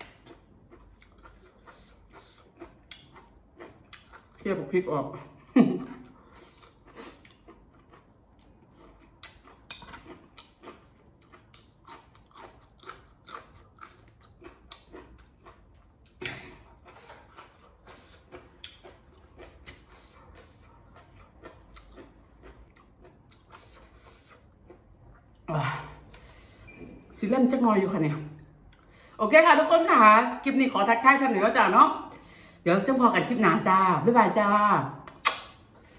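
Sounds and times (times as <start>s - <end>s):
chewing crisp vegetables: 0.0s - 26.5s, 27.5s - 29.2s, 35.0s - 35.9s
mouth clicks: 35.0s - 35.6s.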